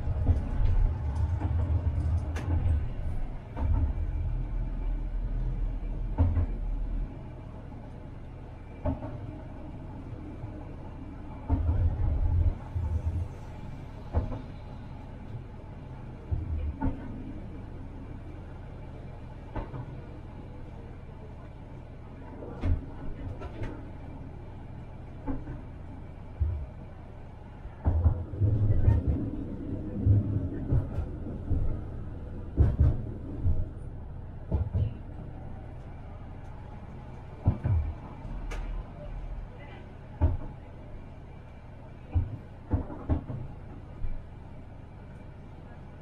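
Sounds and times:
tram rumbling on track: 0.0 - 46.0.

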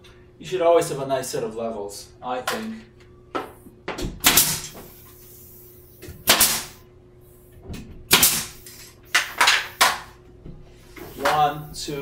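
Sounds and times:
nail gun shots with hiss: 4.2 - 5.4, 6.2 - 6.8, 8.1 - 10.2.

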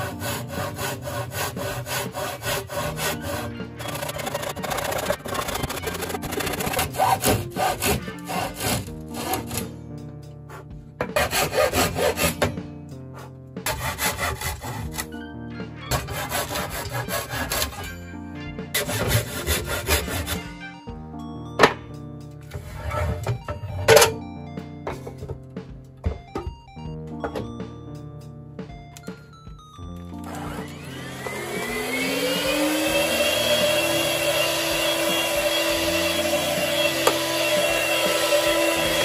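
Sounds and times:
hand saw cutting wood: 0.0 - 9.8, 10.5 - 12.5, 13.1 - 15.2, 15.9 - 18.0, 18.8 - 20.6, 30.3 - 39.0
background music: 0.0 - 39.0.

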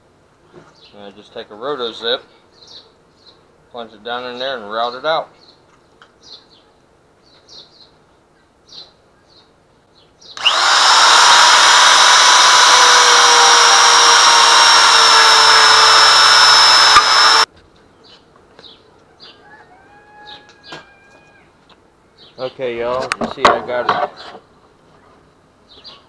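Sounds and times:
spiral saw whining through wood: 10.4 - 17.5.

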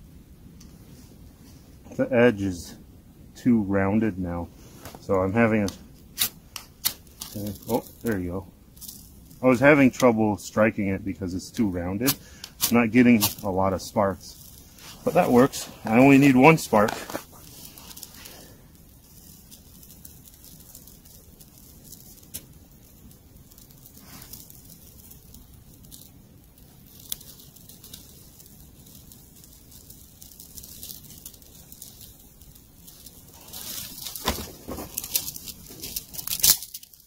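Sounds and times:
small fire crackling: 0.0 - 37.0
dry twigs snapping: 5.6 - 8.2, 14.3 - 37.0.

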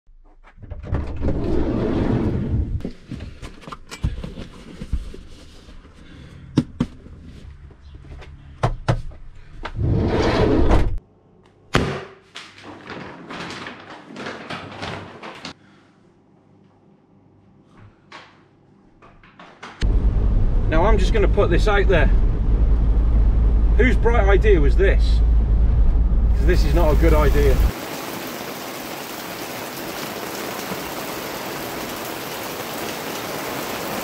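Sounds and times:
sliding van door rumbling: 0.8 - 2.8.

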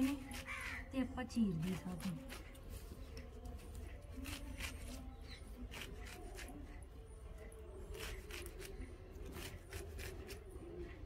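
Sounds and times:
knife cutting greens: 0.0 - 0.9, 1.5 - 6.7, 7.9 - 10.5.

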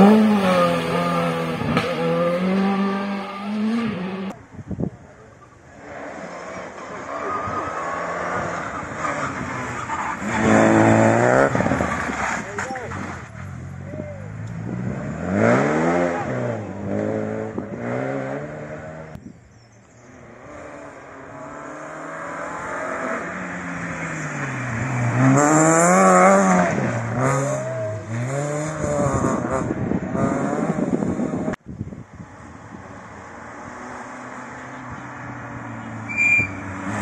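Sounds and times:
rally car engine revving: 0.0 - 4.4, 5.8 - 19.2, 20.0 - 31.6.

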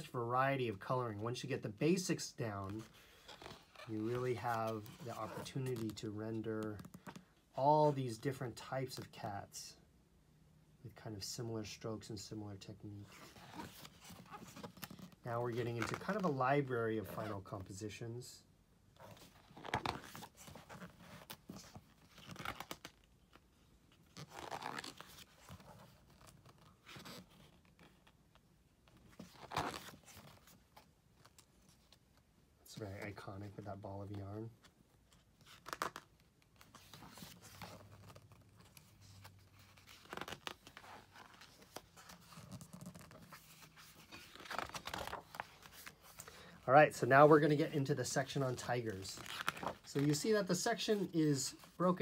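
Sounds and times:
book pages rustling: 13.0 - 17.4, 19.0 - 33.4, 34.0 - 46.6, 47.2 - 52.0.

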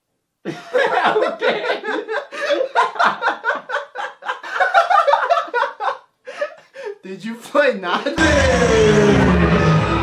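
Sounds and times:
people laughing: 0.5 - 6.1, 8.1 - 10.0.

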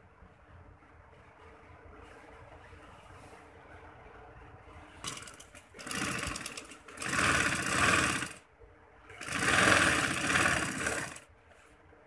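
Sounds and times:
sewing machine stitching: 5.0 - 8.4, 9.1 - 11.3.

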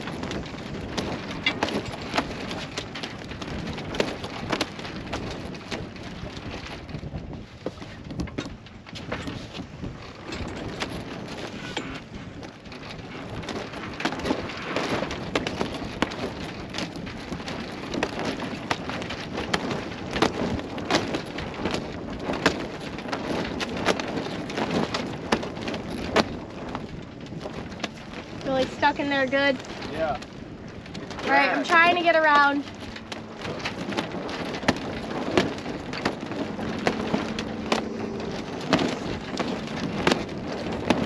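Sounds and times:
wind: 0.0 - 41.0
water lapping: 21.9 - 41.0.

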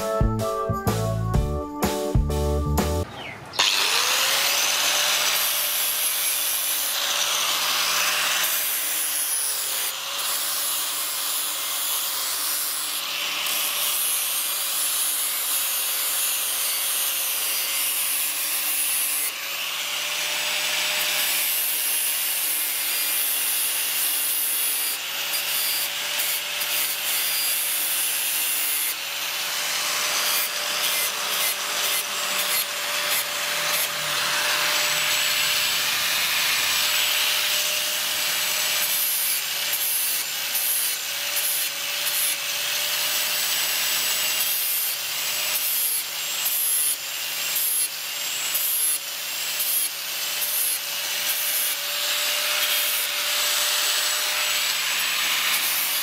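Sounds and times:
angle grinder grinding metal: 3.6 - 56.0.

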